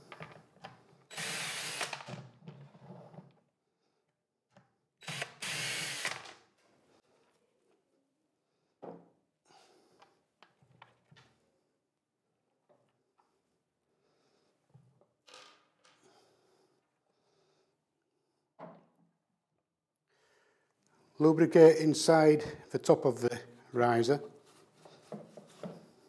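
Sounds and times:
cordless drill driving screws: 0:01.1 - 0:02.3, 0:05.0 - 0:06.4.

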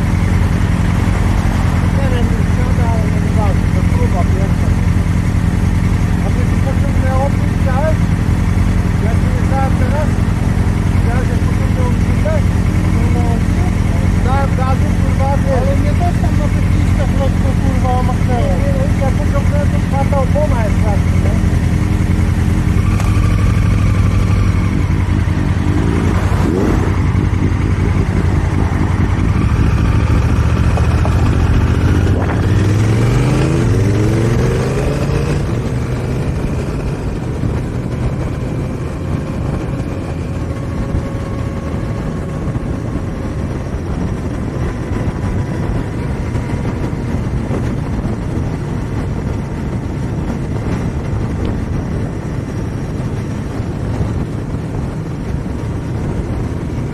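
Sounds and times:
motorcycle engine idling and revving: 0:00.0 - 0:56.9
wind and road noise: 0:00.0 - 0:56.9.

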